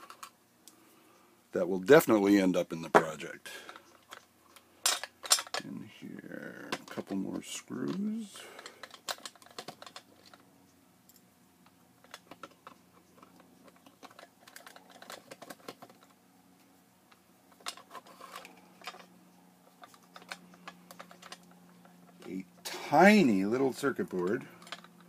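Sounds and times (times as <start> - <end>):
steady low hum: 0.0 - 25.0
plastic parts knocking: 8.8 - 10.4, 12.0 - 16.1.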